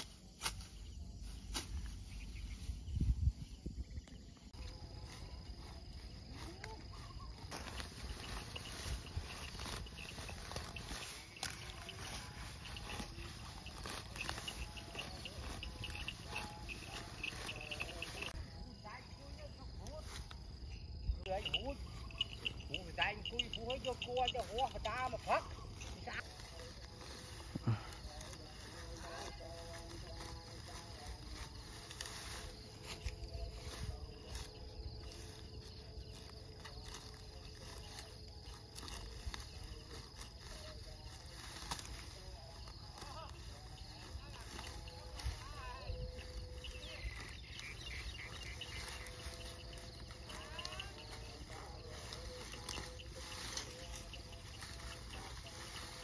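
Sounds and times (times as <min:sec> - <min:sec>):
crickets chirping: 0:00.0 - 0:56.0
insect drone: 0:00.0 - 0:56.0.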